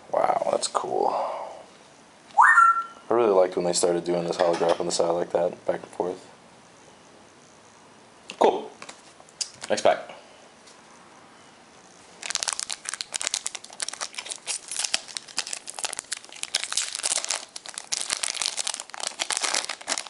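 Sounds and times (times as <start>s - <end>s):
foil wrapper crinkling: 12.1s - 20.0s
foil wrapper tearing: 12.2s - 20.0s.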